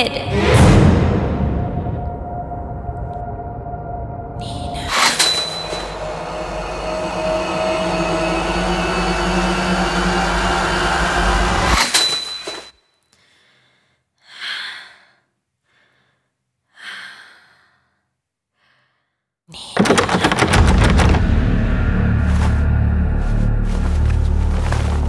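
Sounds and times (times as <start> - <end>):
suspense music drone: 0.4 - 11.8, 20.5 - 25.0.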